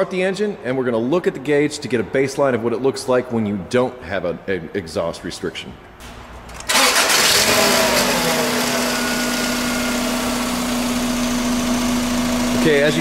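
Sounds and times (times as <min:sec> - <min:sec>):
car engine starting and idling: 0:06.5 - 0:13.0.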